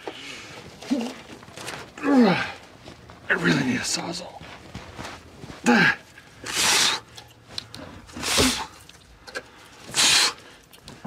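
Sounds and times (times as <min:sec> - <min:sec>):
man grunting with effort: 0:05.6 - 0:06.0.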